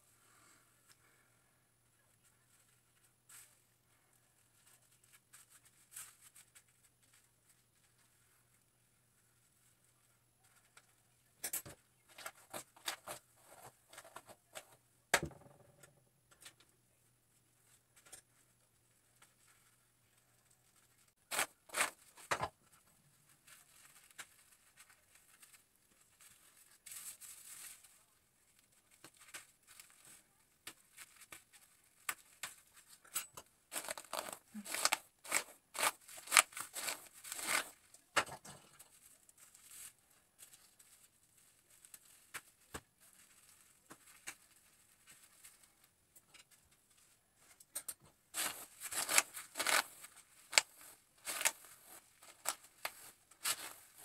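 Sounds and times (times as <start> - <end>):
plastic cap crinkling: 33.7 - 37.7, 48.4 - 54.0
hair rustling: 33.7 - 37.9, 48.4 - 54.0.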